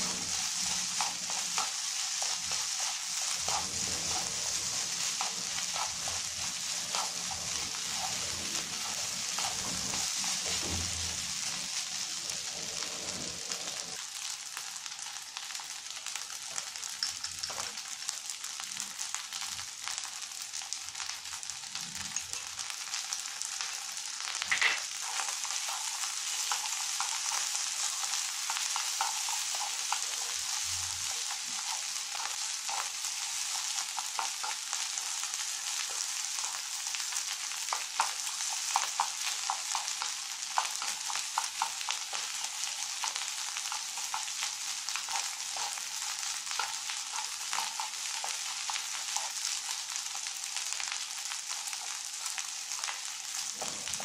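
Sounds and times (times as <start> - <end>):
rice sizzling in a frying pan: 0.0 - 54.0
chopsticks scraping and tapping pan: 0.9 - 10.7, 24.4 - 34.6, 45.0 - 49.3.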